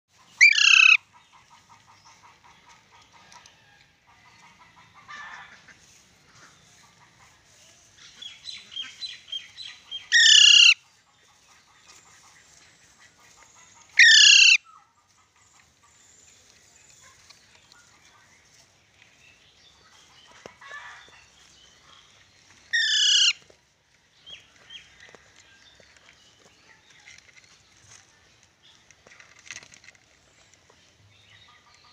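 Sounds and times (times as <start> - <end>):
parakeet screeching: 0.4 - 1.0, 10.2 - 10.8, 14.0 - 14.6, 22.8 - 23.4.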